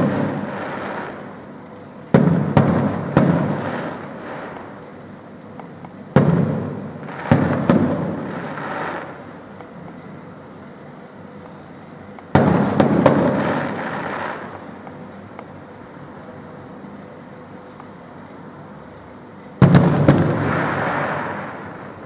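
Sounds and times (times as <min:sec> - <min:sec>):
firework shells bursting: 0:00.0 - 0:01.5, 0:05.6 - 0:09.7, 0:12.2 - 0:15.0
rumbling echo: 0:19.6 - 0:22.0.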